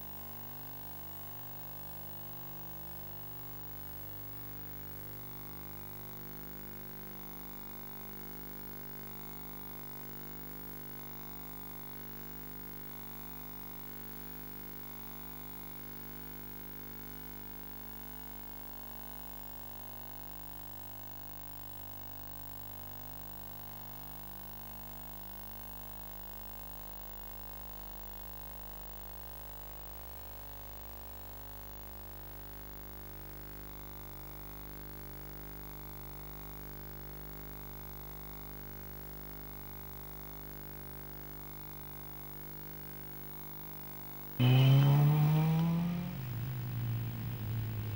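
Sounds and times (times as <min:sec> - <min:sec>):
faint hiss: 0:44.4 - 0:47.9.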